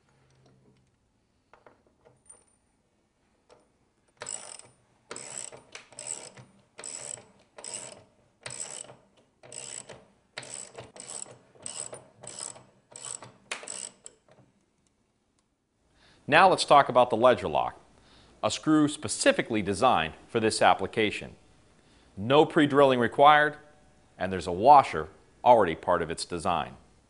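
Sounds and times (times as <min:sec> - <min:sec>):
ratchet wrench ratcheting: 0:04.2 - 0:14.3.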